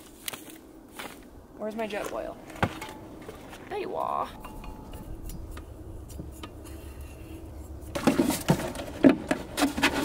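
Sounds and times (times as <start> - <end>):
clattering and rustling: 4.4 - 10.0.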